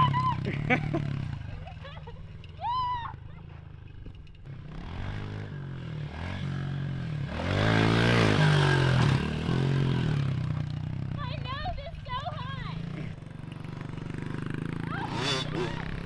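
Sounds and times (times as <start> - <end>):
pit bike engine revving: 3.2 - 16.0.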